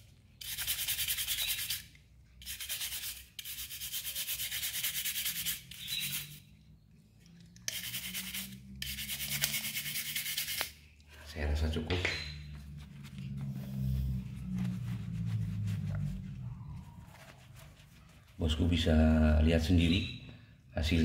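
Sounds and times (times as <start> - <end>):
wire brush scrubbing metal: 7.7 - 10.7.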